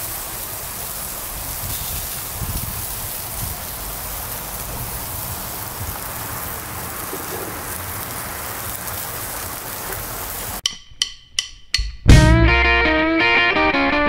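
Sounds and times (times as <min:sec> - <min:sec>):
meat sizzling on a grill: 0:00.0 - 0:10.6.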